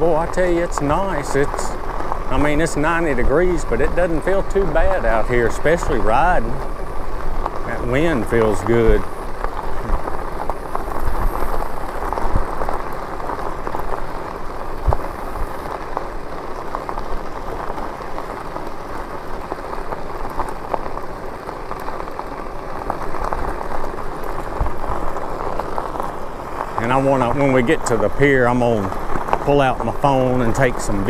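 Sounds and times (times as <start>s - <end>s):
wind buffeting microphone: 0.0s - 21.1s
bike rolling on road: 0.0s - 31.0s.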